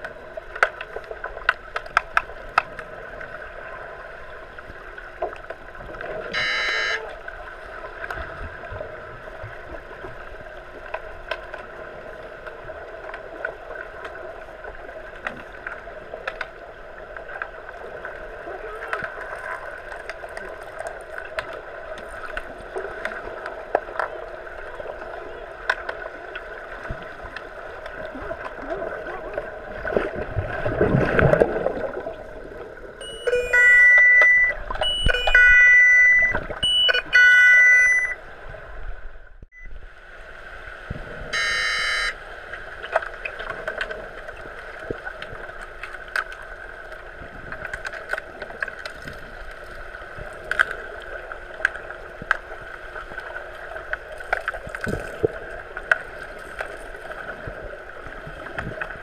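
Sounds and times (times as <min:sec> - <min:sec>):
water rushing near microphone: 0:00.0 - 0:59.0
muffled underwater hum: 0:05.9 - 0:10.3, 0:41.2 - 0:42.2
underwater sounder beeping: 0:06.1 - 0:07.3, 0:33.0 - 0:38.3, 0:39.5 - 0:39.8, 0:41.3 - 0:42.2.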